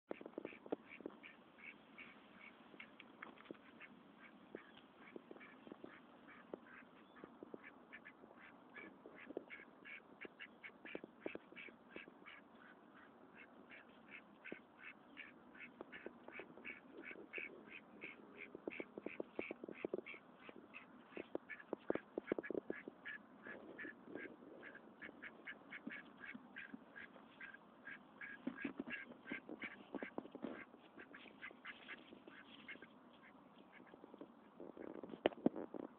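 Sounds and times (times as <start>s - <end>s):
ducks quacking: 0.1s - 3.0s, 3.6s - 35.1s
rustling through dry leaves: 28.5s - 33.9s.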